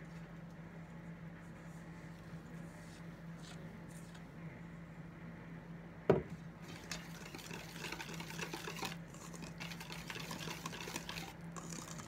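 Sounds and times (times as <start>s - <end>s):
whisk scraping metal bowl: 6.6s - 12.0s.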